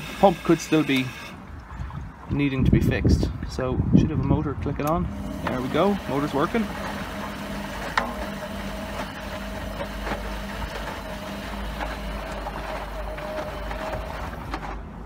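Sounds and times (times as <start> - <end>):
washing machine motor hum: 0.0 - 1.4, 5.0 - 15.0.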